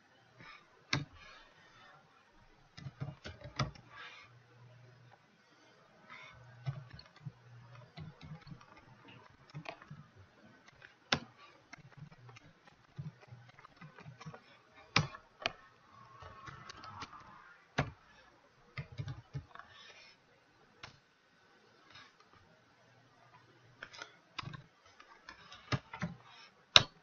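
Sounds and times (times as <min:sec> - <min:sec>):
keyboard and mouse clicks: 0:00.4 - 0:01.4, 0:02.8 - 0:04.1, 0:06.1 - 0:18.1, 0:18.8 - 0:20.0, 0:20.8 - 0:21.0, 0:23.3 - 0:27.0.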